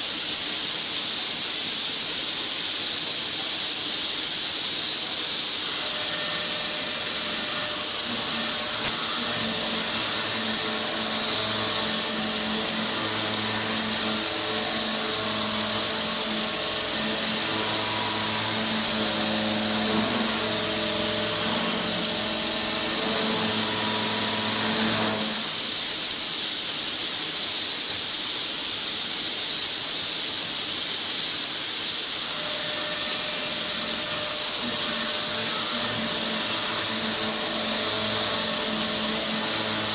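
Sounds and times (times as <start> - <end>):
milling machine cutting metal: 4.9 - 25.9, 32.1 - 39.9
pitched cutting tone: 5.6 - 25.6, 32.3 - 39.9.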